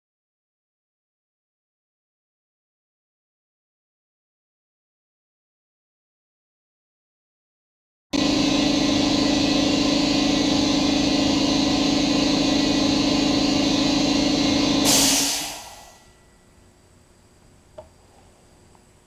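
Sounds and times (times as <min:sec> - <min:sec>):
hot-air welder blowing air: 0:08.2 - 0:16.1.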